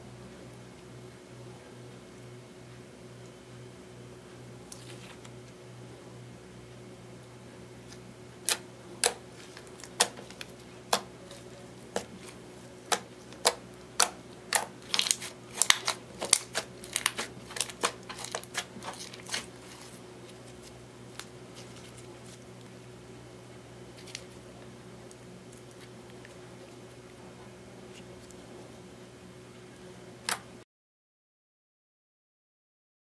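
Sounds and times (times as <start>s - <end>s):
slime clicking and popping: 12.9s - 19.4s.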